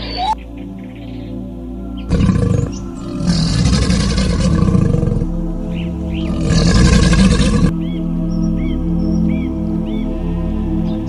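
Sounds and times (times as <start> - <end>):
crocodilian calling: 0.0 - 0.4, 2.0 - 5.3, 6.1 - 7.7
soft background music: 0.0 - 11.0.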